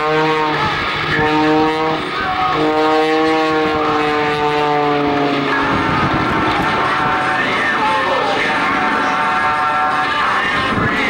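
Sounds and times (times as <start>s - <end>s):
propeller airplane engine droning: 0.0s - 11.0s.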